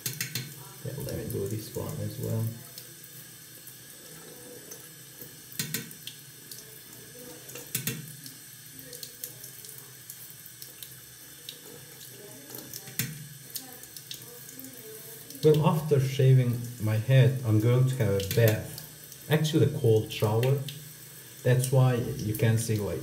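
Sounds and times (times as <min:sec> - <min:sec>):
tap running into sink: 0:12.6 - 0:13.4.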